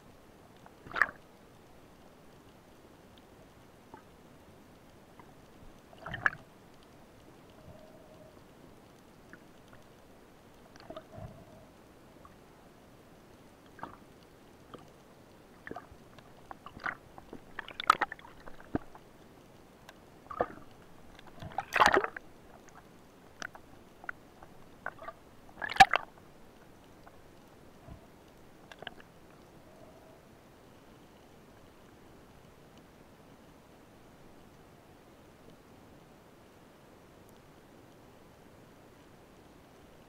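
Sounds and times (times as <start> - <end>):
faint underwater hiss: 0.0 - 40.0
underwater clicks and knocks: 15.6 - 19.0, 20.3 - 26.2.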